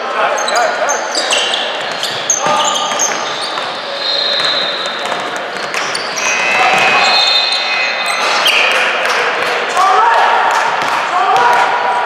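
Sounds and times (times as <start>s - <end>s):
indistinct voices: 0.0s - 12.0s
basketball bouncing on court: 4.4s - 6.9s.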